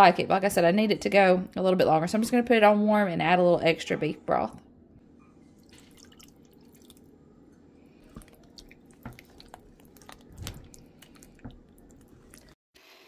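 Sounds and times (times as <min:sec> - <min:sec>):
broth pouring: 0:05.4 - 0:07.2, 0:07.8 - 0:12.6
wet squelching: 0:05.5 - 0:07.2, 0:07.9 - 0:12.6.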